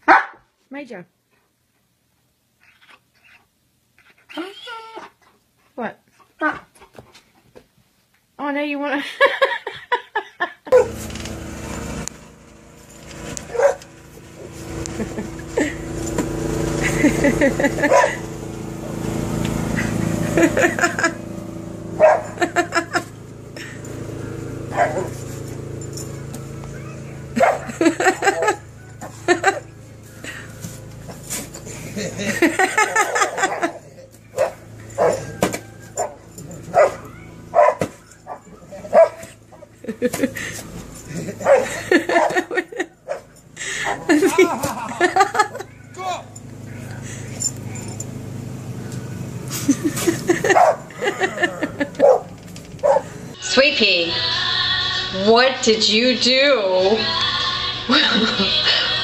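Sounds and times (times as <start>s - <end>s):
dog barking: 0.0s - 0.4s, 13.5s - 13.8s, 17.8s - 18.2s, 22.0s - 22.4s, 24.7s - 25.2s, 27.4s - 29.1s, 32.9s - 39.3s, 41.4s - 43.3s, 50.4s - 50.9s, 52.0s - 53.1s
low hum: 10.7s - 59.0s.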